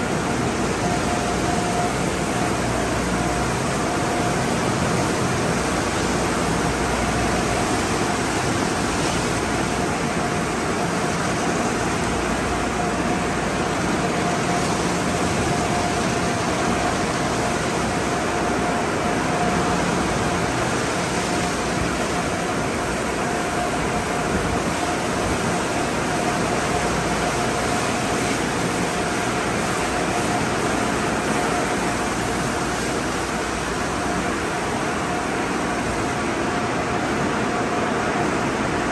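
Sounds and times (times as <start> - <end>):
machinery whine: 0.0 - 38.9.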